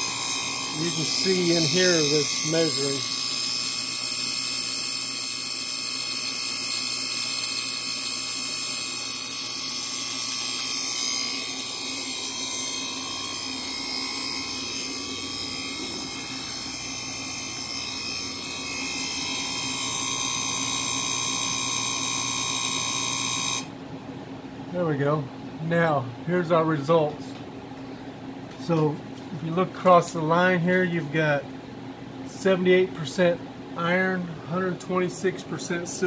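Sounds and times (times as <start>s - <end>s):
high whining tones: 0.0s - 5.0s, 8.5s - 23.7s
electrical arc buzz and hiss: 0.0s - 23.7s.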